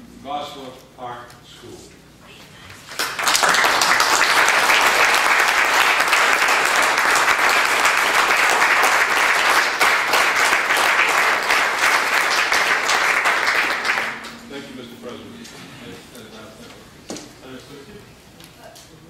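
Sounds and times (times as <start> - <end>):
crowd applauding: 2.9 - 14.5.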